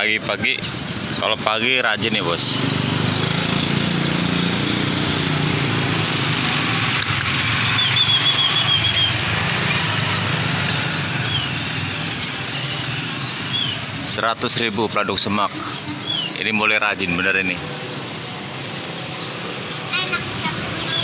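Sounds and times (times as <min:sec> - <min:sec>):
low rumble of traffic: 0:00.0 - 0:21.0
bird chirping: 0:06.6 - 0:17.6, 0:19.0 - 0:21.0.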